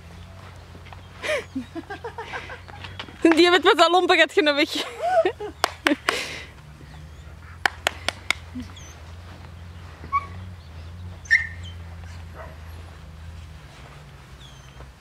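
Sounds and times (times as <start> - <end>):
puppies yipping: 5.0 - 13.1, 14.3 - 14.9.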